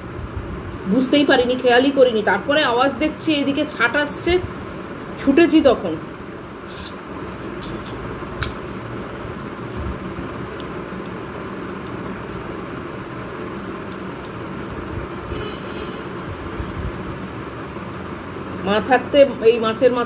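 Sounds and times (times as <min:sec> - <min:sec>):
room background noise: 0:00.0 - 0:20.0
sharp click: 0:07.6 - 0:08.6
woman eating by hand: 0:13.0 - 0:15.0.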